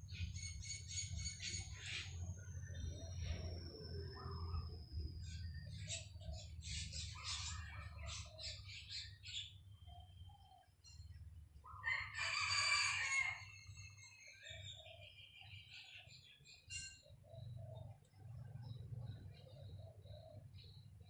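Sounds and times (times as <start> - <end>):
rooster crowing: 11.8 - 13.7.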